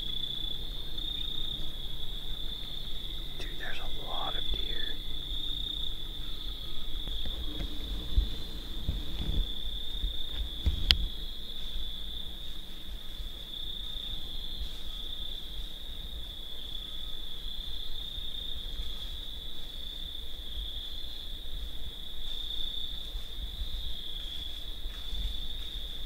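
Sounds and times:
insect chorus trilling: 0.0 - 26.0
low rumbling thumps: 7.1 - 11.2.

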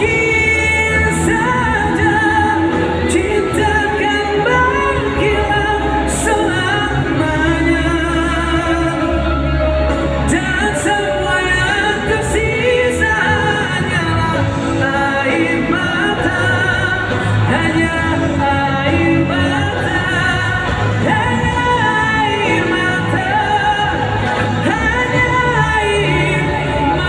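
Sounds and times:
live pop band playing: 0.0 - 27.0
person singing: 0.0 - 27.0.

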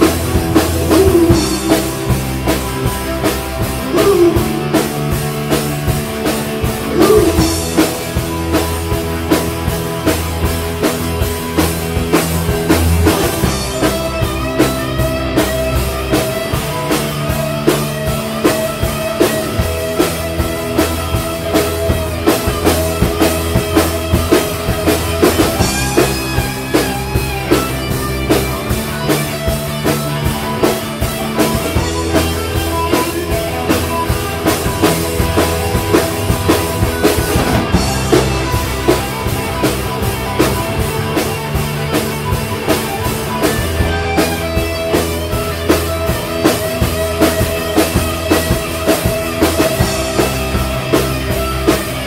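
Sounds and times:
bass line: 0.0 - 52.0
drum kit beat: 0.0 - 52.0
held chords: 0.0 - 52.0.

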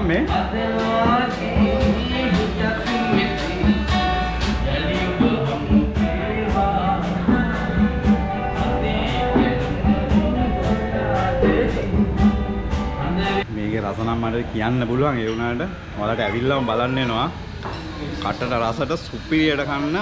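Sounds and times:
steady beat: 0.0 - 13.4
acoustic guitar: 0.0 - 13.5
man singing: 0.0 - 13.5.

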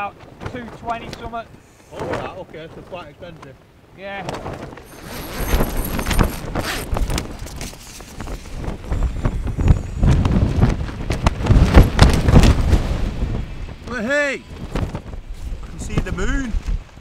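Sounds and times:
wind gusting over microphone: 3.7 - 17.0
tent fabric rustling: 4.3 - 13.1
tent zip pulled open: 4.8 - 8.8.

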